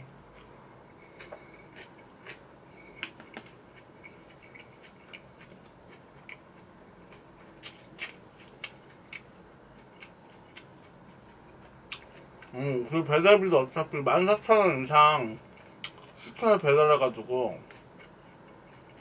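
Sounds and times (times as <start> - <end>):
faint steady hiss: 0.0 - 19.0
chewing mouth clicks and smacks: 3.0 - 6.4, 7.1 - 12.5.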